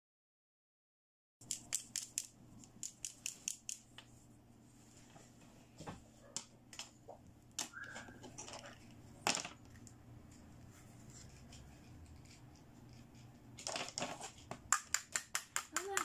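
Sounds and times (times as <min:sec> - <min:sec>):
plastic toy clicks and taps: 0:01.4 - 0:03.9, 0:14.7 - 0:16.0.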